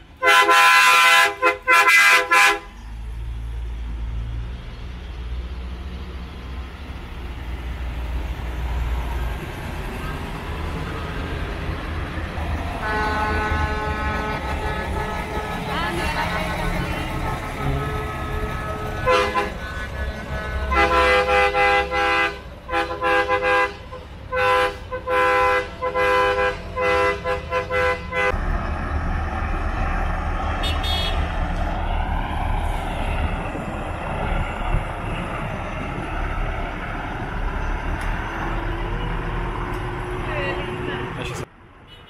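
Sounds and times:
diesel truck engine rumbling: 0.0 - 41.8
truck air horn blasts: 0.2 - 2.8, 12.8 - 28.4, 30.6 - 31.3.

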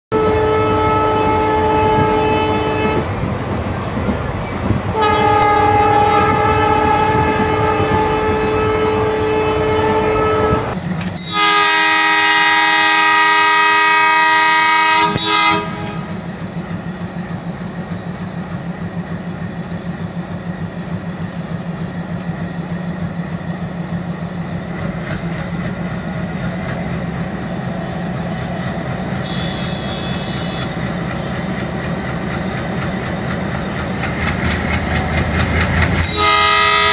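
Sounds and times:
diesel locomotive horn blasts: 0.1 - 3.1, 4.9 - 16.2, 29.0 - 31.5, 35.9 - 36.9
diesel engine chugging: 15.7 - 36.9.

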